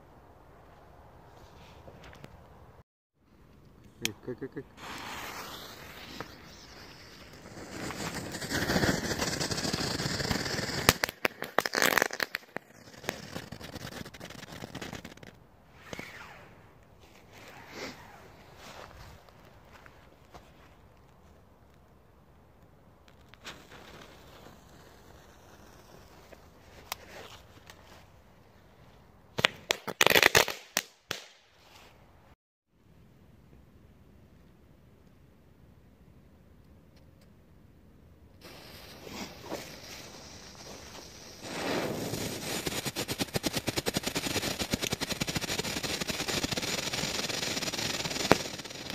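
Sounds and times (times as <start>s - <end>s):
firework crackling: 4.4s - 16.4s, 23.1s - 27.2s, 29.4s - 31.3s, 38.4s - 48.9s
firework hissing: 4.7s - 16.3s, 23.4s - 26.7s, 38.4s - 48.9s
firework bang: 4.8s - 12.0s.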